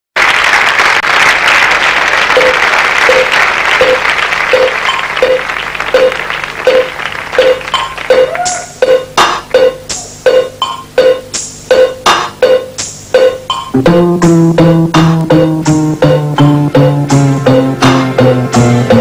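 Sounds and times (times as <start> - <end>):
audience applauding: 0.2 - 8.8
music with repeating note: 6.0 - 19.0.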